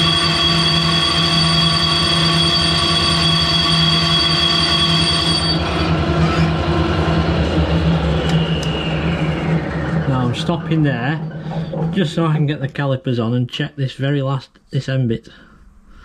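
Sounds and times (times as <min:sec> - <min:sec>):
high whine of cutting: 0:00.0 - 0:12.2
lathe running: 0:00.0 - 0:12.4.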